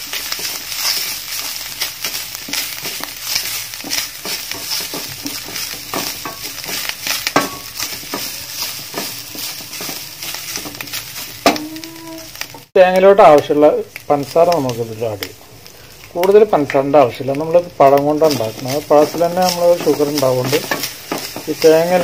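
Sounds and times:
spatula scraping and tapping pan: 0.0 - 13.1, 17.9 - 22.0
coconut sizzling in ghee: 0.0 - 22.0.

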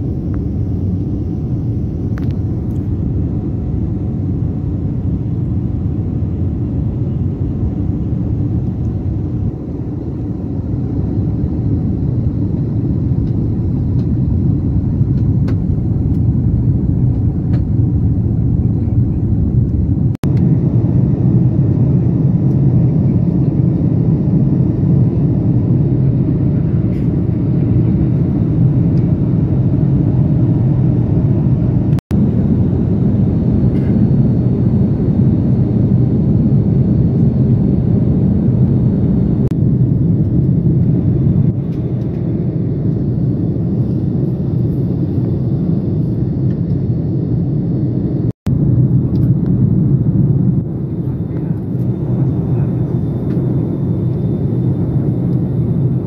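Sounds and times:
aircraft cabin engine rumble: 0.0 - 56.0.

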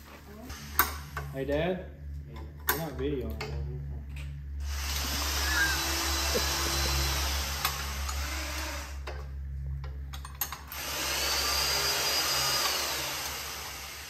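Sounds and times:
motor-driven tool hissing: 4.7 - 9.0.

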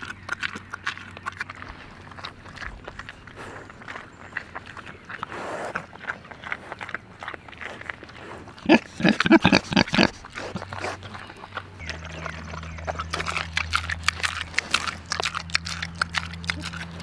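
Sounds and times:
pigs chewing feed crunching: 0.0 - 17.0
pigs grunting: 0.0 - 17.0
steady low hum: 10.1 - 17.0.

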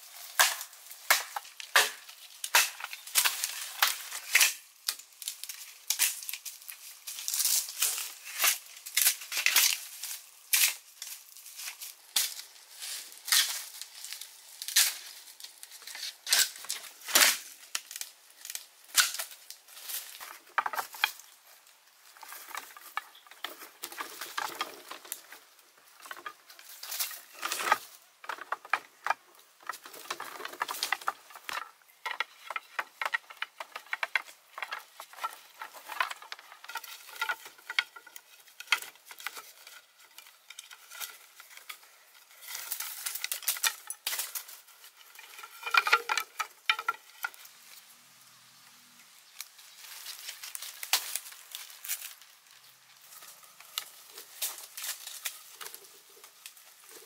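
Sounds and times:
vine lashing clicks and scraping: 0.2 - 21.4, 22.0 - 47.5
bamboo poles knocking: 0.3 - 4.6, 20.2 - 21.3, 22.2 - 41.8, 45.2 - 47.4.

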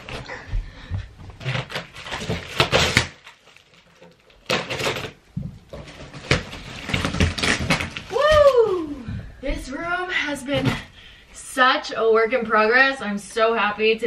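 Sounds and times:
cardboard and tape tearing: 1.4 - 8.6.

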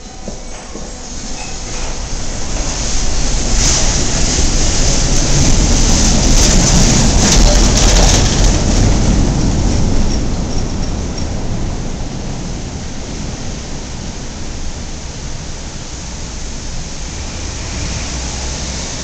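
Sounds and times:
monorail car rumbling past: 0.0 - 19.0.

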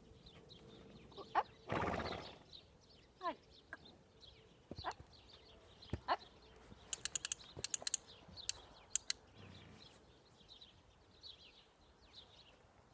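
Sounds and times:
small birds chirping: 0.0 - 12.9
sharp clicks: 6.9 - 9.2.

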